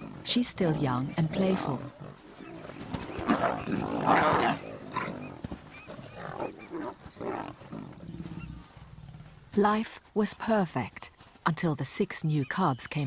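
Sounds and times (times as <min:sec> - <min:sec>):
young lions growling: 0:00.0 - 0:09.5.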